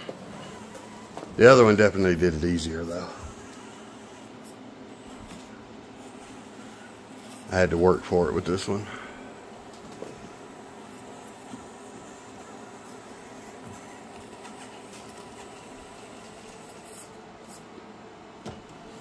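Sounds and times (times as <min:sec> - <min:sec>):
faint mechanical whirring hum: 0:00.0 - 0:19.0.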